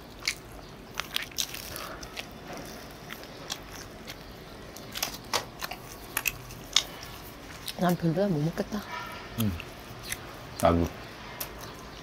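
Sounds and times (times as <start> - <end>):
people chewing pizza: 0.0 - 12.0.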